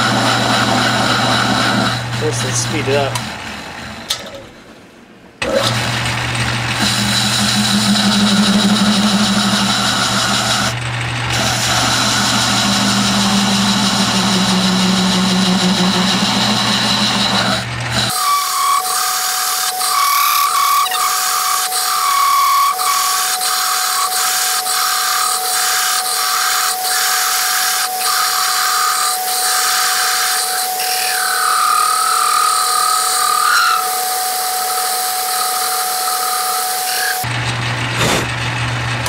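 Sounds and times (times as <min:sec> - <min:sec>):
metal lathe whine: 0:00.0 - 0:04.1, 0:06.7 - 0:37.4.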